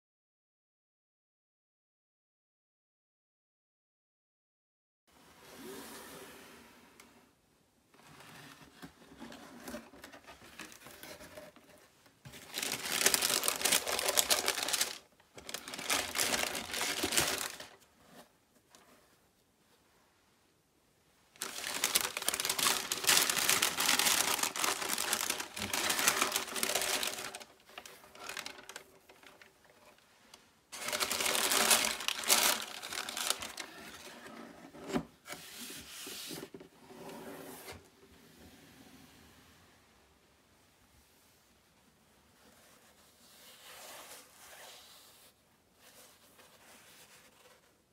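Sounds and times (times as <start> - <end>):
tissue paper crinkling: 12.3 - 17.9, 21.4 - 34.1.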